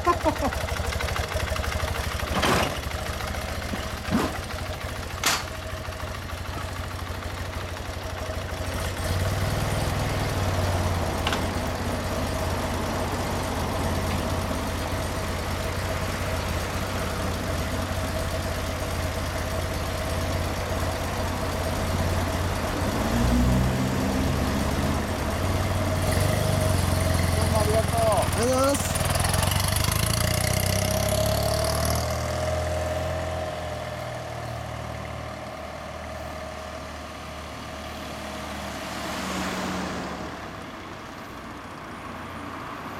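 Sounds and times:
motorcycle engine idling: 0:00.0 - 0:09.8, 0:13.8 - 0:22.8, 0:26.8 - 0:32.0
sharp clunks: 0:05.2 - 0:05.6.

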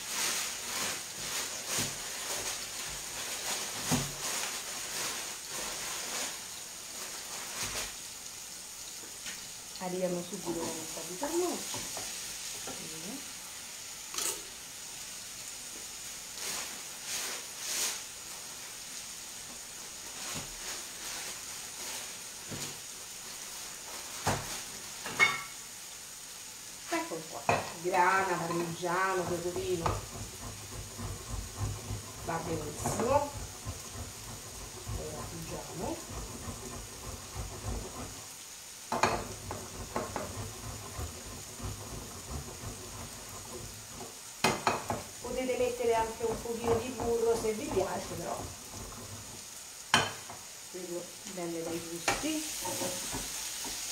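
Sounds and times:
rustles: 0:00.0 - 0:08.1, 0:15.8 - 0:25.6
food sizzling in a frying pan: 0:00.0 - 0:53.9
cheese grating on metal grater: 0:28.4 - 0:38.3, 0:39.3 - 0:44.1.

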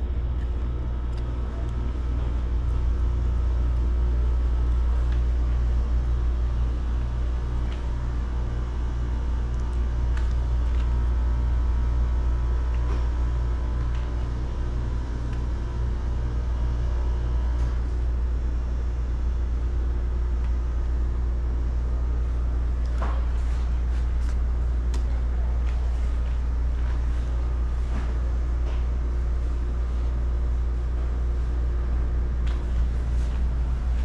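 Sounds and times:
low machine rumble: 0:00.0 - 0:34.0.

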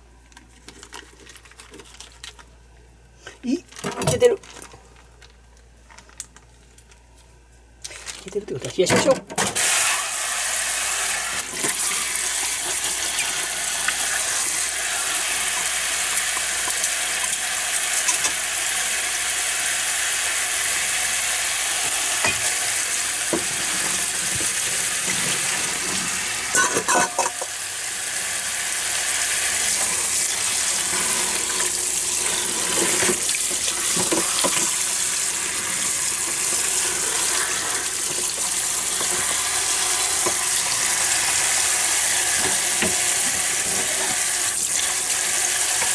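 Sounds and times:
plastic bags clattering: 0:00.3 - 0:02.5, 0:03.6 - 0:07.0, 0:07.8 - 0:09.6
water running into a sink: 0:09.6 - 0:45.9.

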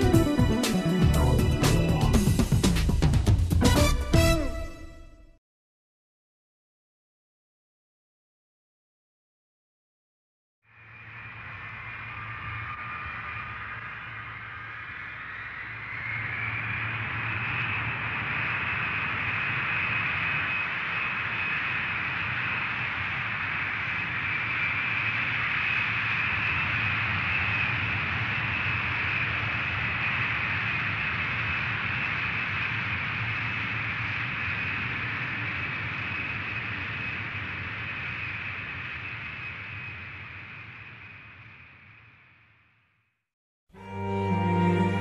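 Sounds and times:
jet engine whine: 0:10.7 - 0:42.8.

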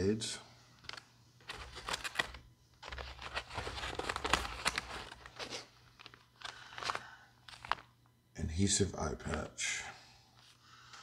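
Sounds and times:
plastic packaging crinkling: 0:00.8 - 0:07.9.

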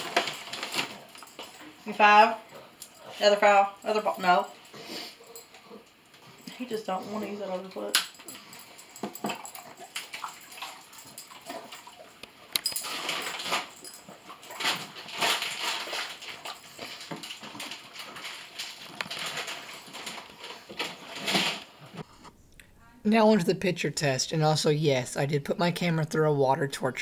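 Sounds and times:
dog sniffing and breathing: 0:04.5 - 0:07.6.

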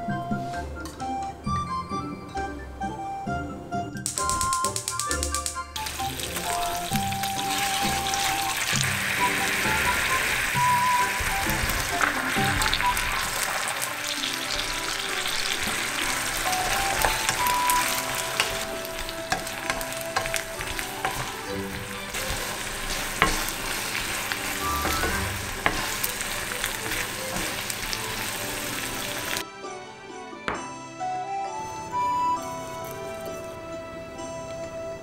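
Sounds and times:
food sizzling in a pan: 0:05.8 - 0:29.4
wooden spatula knocking: 0:14.8 - 0:28.2.

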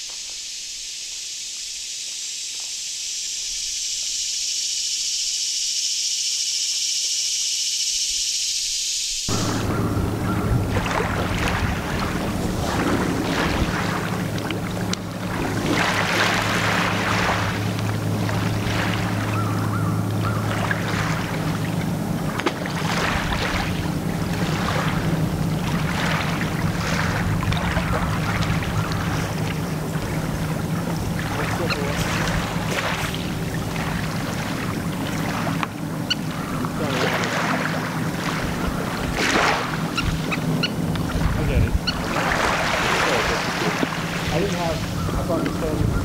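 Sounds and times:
rushing noise: 0:08.9 - 0:18.9
motor humming: 0:09.1 - 0:46.0.

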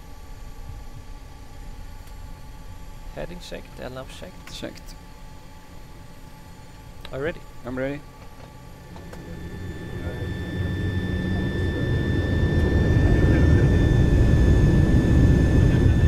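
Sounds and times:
high engine whine: 0:00.0 - 0:16.0
jet engines spooling up: 0:08.6 - 0:16.0.

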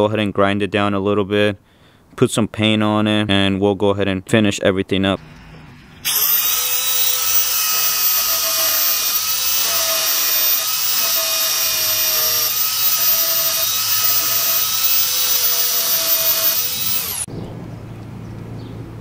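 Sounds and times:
belt sander grinding metal: 0:06.0 - 0:17.3.

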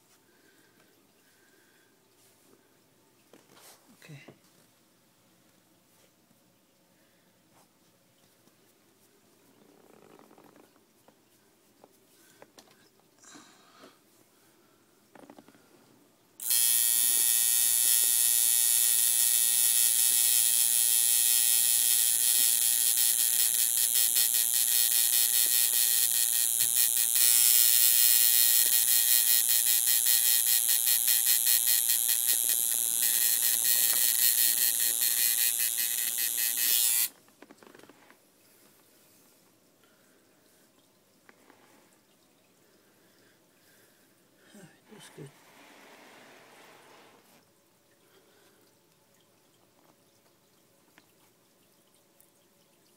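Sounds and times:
tattoo machine buzzing: 0:16.4 - 0:37.1.

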